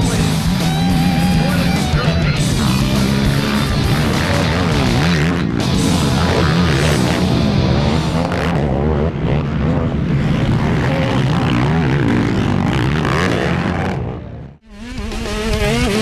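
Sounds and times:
rock music: 0.0 - 9.2
quad engines revving: 0.0 - 16.0.

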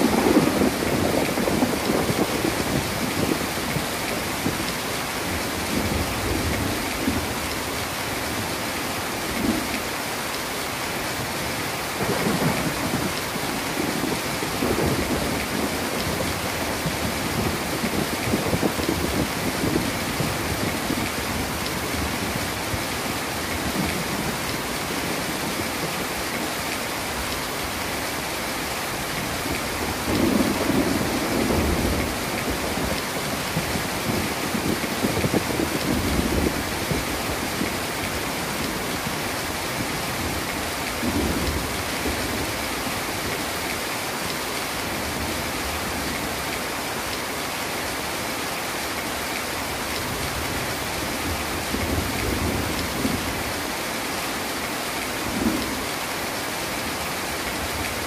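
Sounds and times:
thunder rumbling: 0.0 - 7.4, 12.0 - 22.8, 29.2 - 42.6
heavy rain falling: 0.0 - 58.0.

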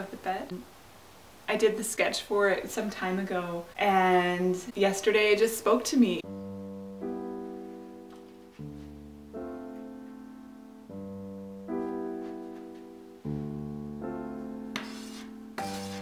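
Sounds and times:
soft piano chords: 6.2 - 16.0.

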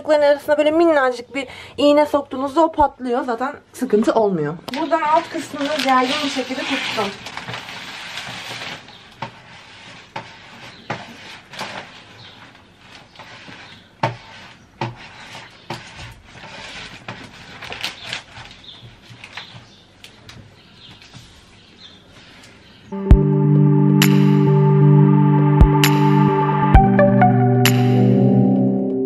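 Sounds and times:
soft rustling: 4.8 - 19.8.

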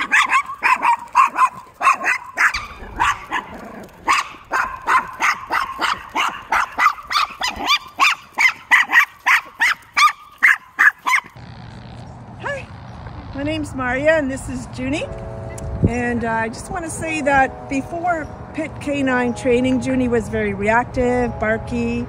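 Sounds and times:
small dog yapping: 0.0 - 11.4.

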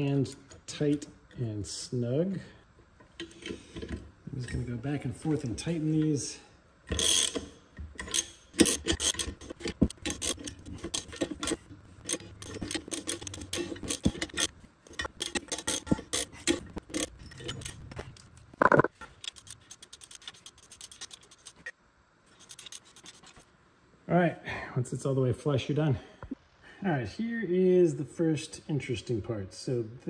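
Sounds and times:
hand ratchet clicking: 6.9 - 17.8.

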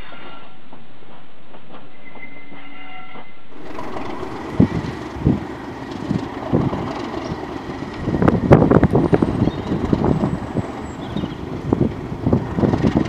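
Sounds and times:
diesel locomotive engine: 0.0 - 13.0
railway coaches rumbling past: 1.6 - 13.0
wind buffeting microphone: 3.5 - 13.0.

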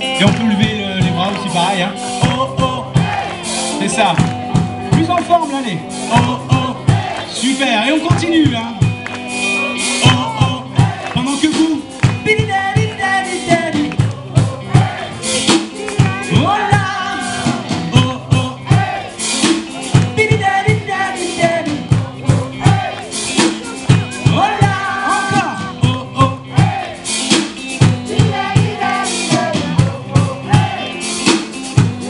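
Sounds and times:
drum kit beat: 0.0 - 32.0
live rock band playing: 0.0 - 32.0
person singing: 9.3 - 32.0.

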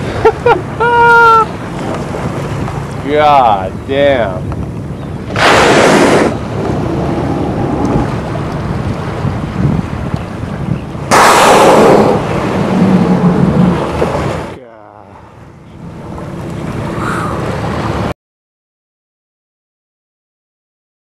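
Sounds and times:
sea noise: 0.0 - 18.2
wind: 0.0 - 18.2
whale blowing: 5.3 - 8.4, 11.1 - 14.5, 16.9 - 17.6.

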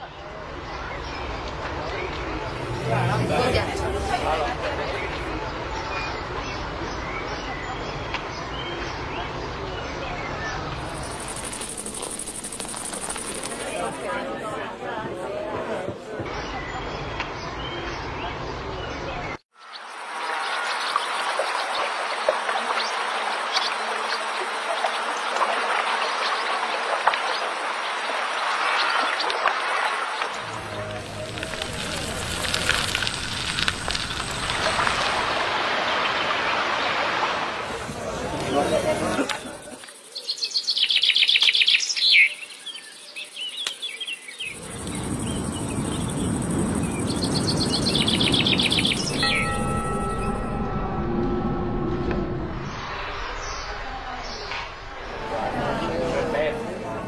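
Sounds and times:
low rushing noise: 1.2 - 6.4, 30.4 - 38.4, 44.5 - 57.0
insect buzz: 10.8 - 14.0, 44.2 - 50.4
flowing water with splashes: 19.9 - 38.6
bird chirps: 39.4 - 54.5.

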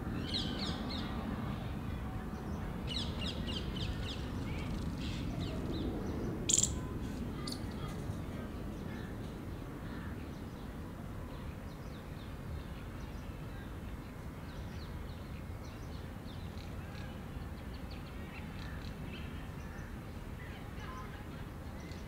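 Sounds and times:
small birds chirping: 2.9 - 8.0.

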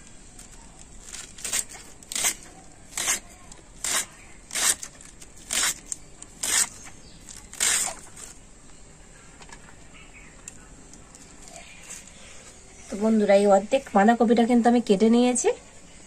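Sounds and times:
knife slicing cabbage: 0.5 - 8.4.

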